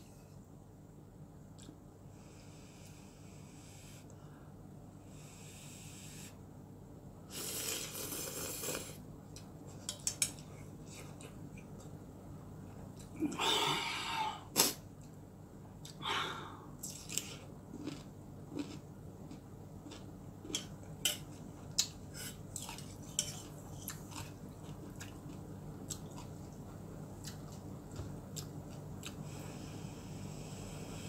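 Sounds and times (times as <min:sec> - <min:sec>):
slurping noodles: 0:07.3 - 0:09.0
chewing: 0:16.8 - 0:29.2.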